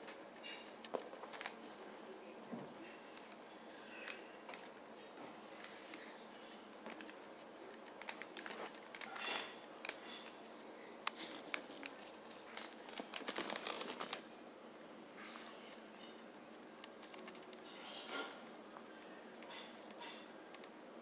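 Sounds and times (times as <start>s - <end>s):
handling clicks and rustles: 11.0s - 14.3s.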